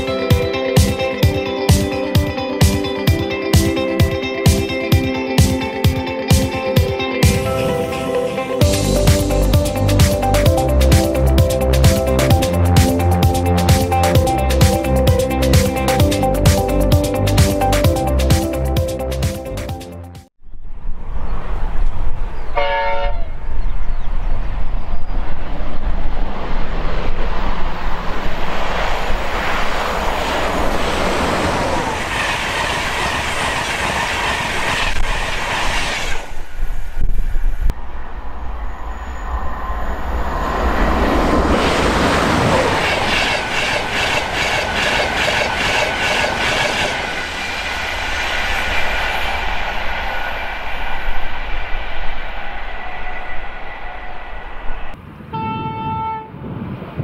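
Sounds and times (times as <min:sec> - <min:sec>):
rush of passing train: 0:00.0 - 0:57.0
train horn blast: 0:22.5 - 0:23.5, 0:55.3 - 0:56.4.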